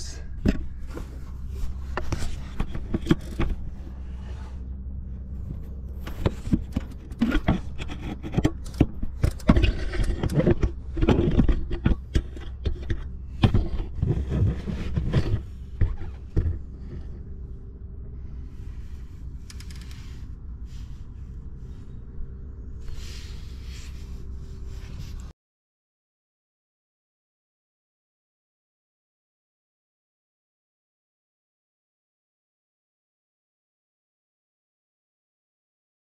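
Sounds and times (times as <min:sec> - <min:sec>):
steady low hum: 0:00.0 - 0:25.3
phone scraping against engine parts: 0:00.4 - 0:04.7, 0:05.3 - 0:17.3.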